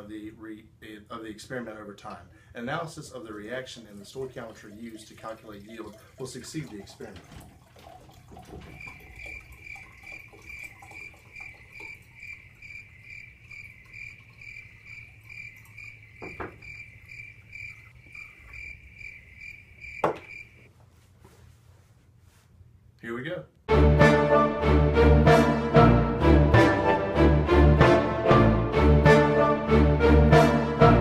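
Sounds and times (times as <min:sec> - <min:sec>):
glassware knocking: 0:16.2 - 0:16.7, 0:20.0 - 0:20.3.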